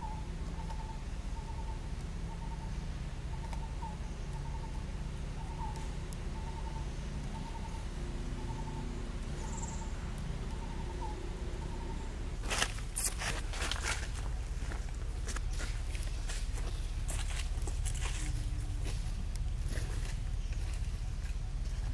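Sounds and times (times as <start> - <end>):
low outdoor rumble: 0.0 - 21.9
rustling scuffle: 12.4 - 21.9.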